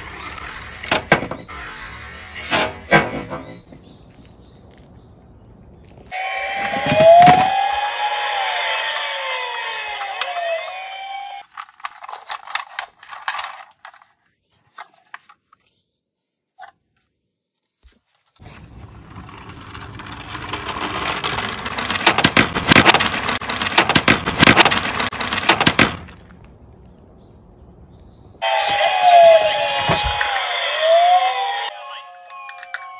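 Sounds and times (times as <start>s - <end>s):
toy wheels rolling on wooden board: 0.0s - 3.7s, 18.6s - 26.2s.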